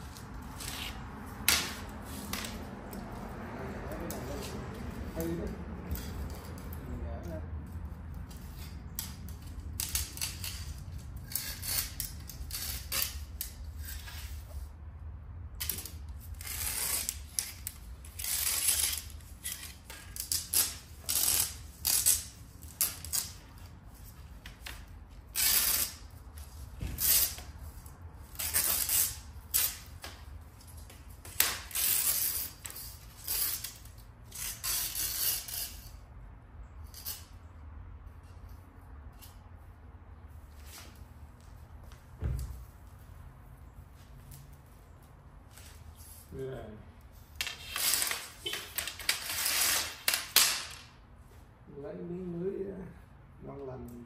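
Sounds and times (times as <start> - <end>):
scratchy rasps of cord pulled out: 15.6 - 23.5.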